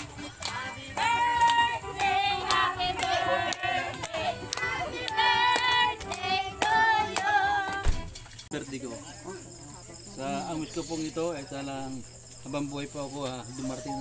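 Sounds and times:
hand clapping: 0.0s - 7.8s
group singing: 0.0s - 8.1s.

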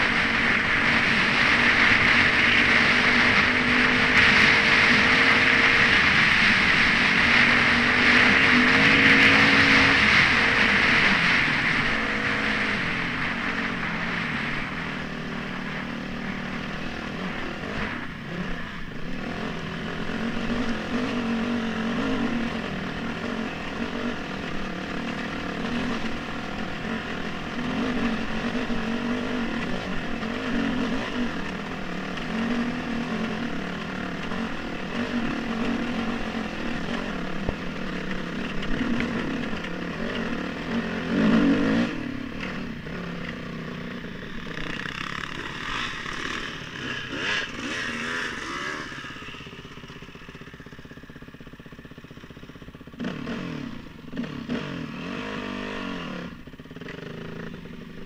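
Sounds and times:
wind noise: 0.0s - 19.4s
dirt bike engine revving: 0.0s - 58.0s.

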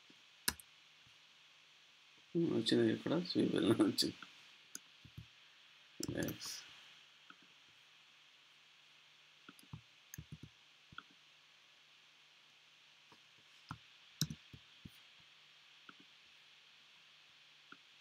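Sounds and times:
low steady hum: 0.0s - 18.0s
keystrokes and mouse clicks: 6.0s - 6.4s, 9.5s - 11.2s, 13.7s - 14.6s.

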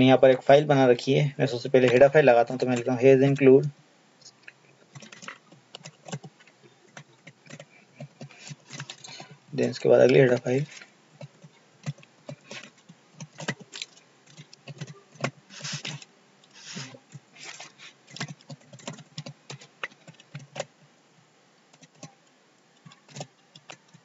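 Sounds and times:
typing on computer keyboard: 4.4s - 9.4s, 10.1s - 16.1s, 16.8s - 20.7s, 21.7s - 22.2s, 22.8s - 24.0s.

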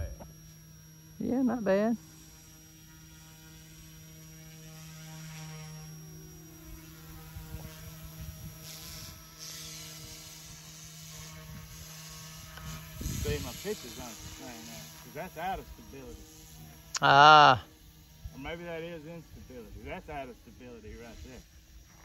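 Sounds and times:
rc helicopter rotor hum: 0.0s - 22.0s
wind buffeting microphone: 12.6s - 14.4s.

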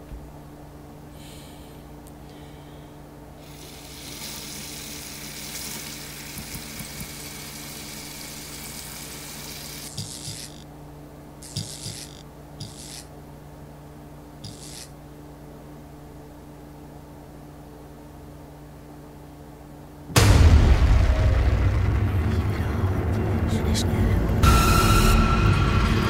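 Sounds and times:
steady low hum: 0.0s - 26.0s
short hissy bursts: 3.4s - 10.6s, 11.4s - 13.1s, 14.4s - 14.9s.

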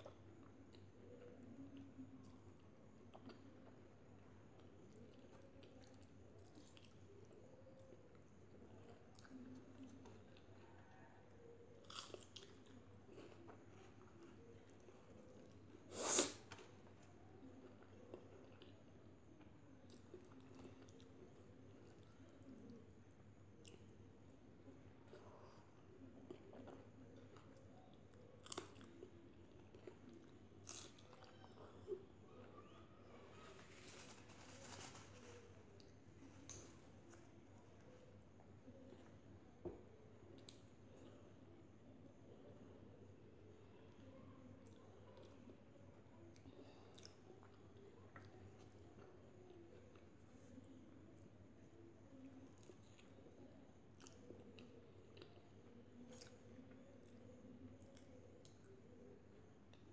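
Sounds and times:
person chewing food: 11.6s - 22.8s, 25.1s - 32.0s.

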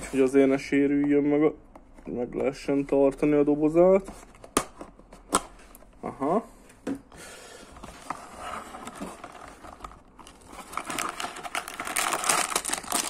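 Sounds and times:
plastic bags crinkling against cardboard: 7.9s - 13.0s.

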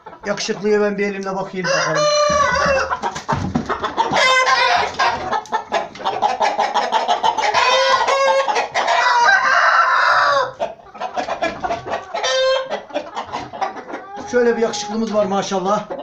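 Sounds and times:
roosters crowing and clucking: 0.0s - 16.0s
knocks of wooden cage: 2.2s - 4.4s.

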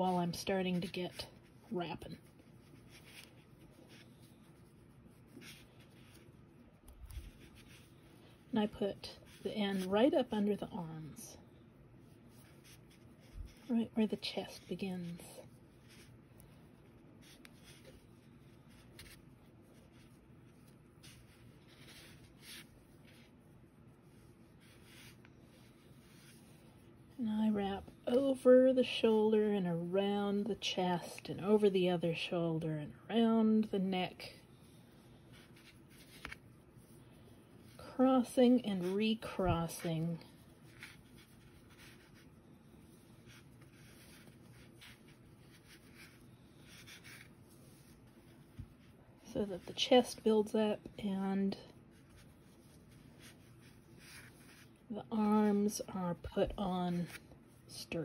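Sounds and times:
soft yarn rustling: 0.0s - 58.0s.

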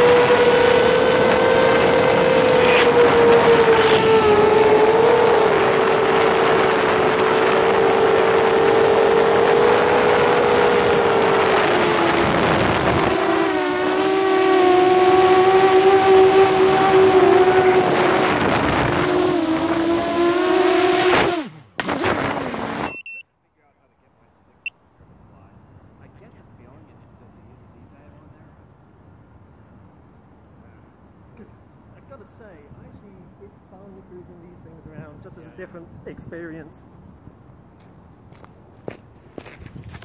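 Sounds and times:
wind noise: 0.0s - 13.6s, 16.0s - 22.6s, 34.6s - 37.8s, 38.6s - 40.0s
drone propellers whining: 0.0s - 23.2s.

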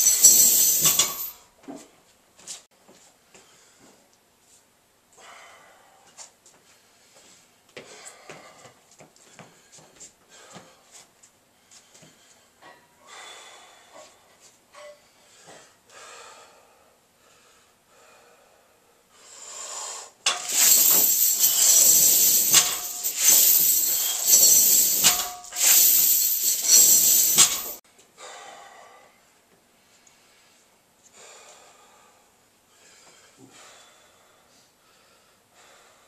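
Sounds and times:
chains jangling and rattling: 0.0s - 1.4s, 20.3s - 27.8s
faint breathing: 3.2s - 4.1s, 5.2s - 20.2s, 28.1s - 36.0s.

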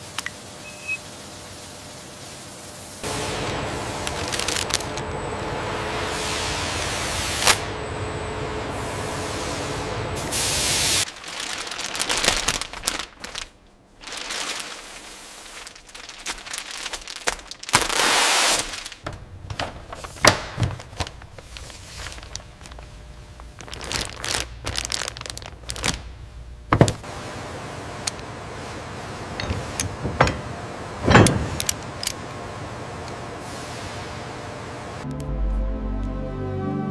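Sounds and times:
steady hiss with faint hum: 0.0s - 35.0s
plastic wrapping film crinkling: 3.2s - 5.2s, 11.0s - 27.0s.

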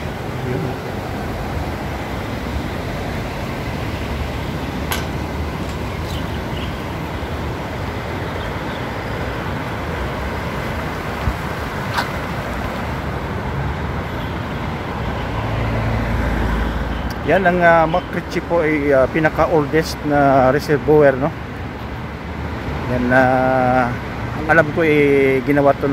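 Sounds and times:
fast water rushing: 0.0s - 16.3s.

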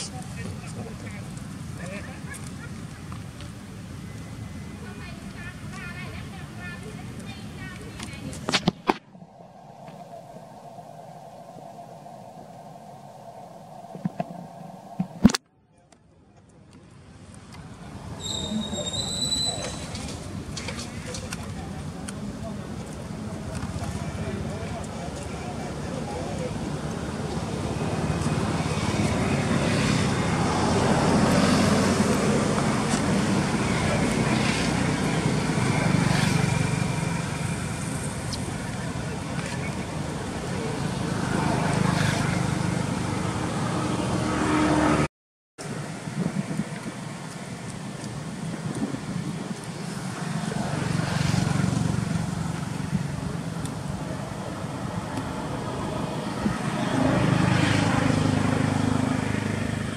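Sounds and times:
passing motor vehicle engine: 17.7s - 45.1s, 45.7s - 59.9s.

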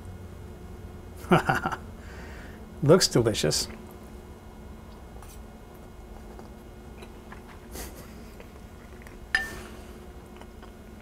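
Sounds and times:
faint steady hum: 0.0s - 11.0s
fork clinking on a plate: 9.4s - 9.6s.

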